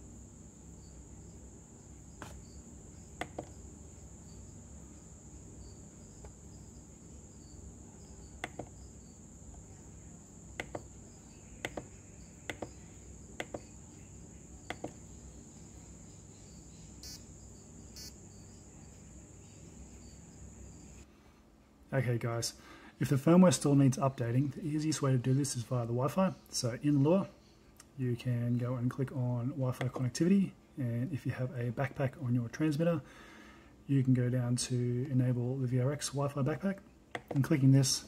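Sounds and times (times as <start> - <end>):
faint high-pitched whine: 0.0 - 38.0
plastic button clicks: 8.4 - 8.7, 37.1 - 37.5
short buzzy beeps: 17.0 - 17.2, 18.0 - 18.2.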